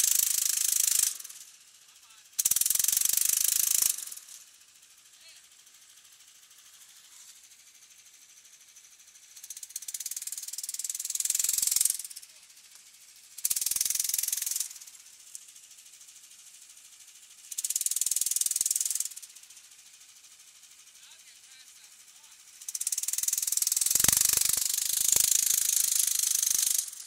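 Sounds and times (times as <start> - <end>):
small petrol engine revving: 0.0 - 1.4, 2.4 - 4.4, 9.4 - 12.4, 13.4 - 15.0, 17.4 - 19.3, 22.6 - 27.0.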